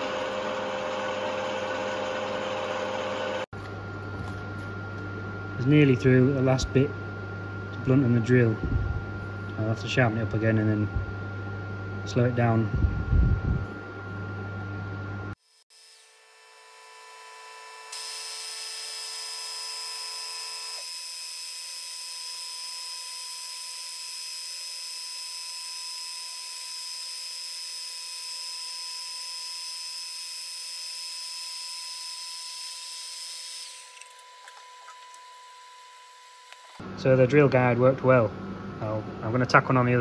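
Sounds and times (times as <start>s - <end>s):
machine humming: 0.0s - 37.5s
drill bit cutting into steel: 15.4s - 36.8s.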